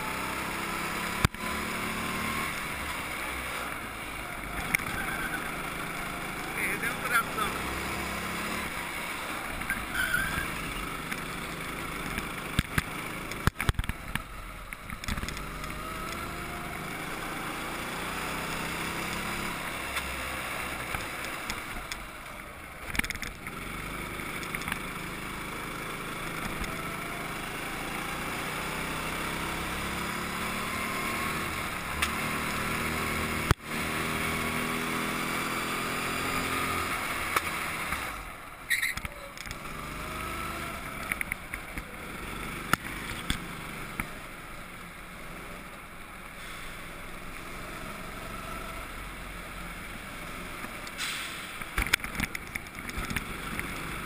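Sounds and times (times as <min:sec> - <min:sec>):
go-kart engine accelerating: 0:00.0 - 0:54.0.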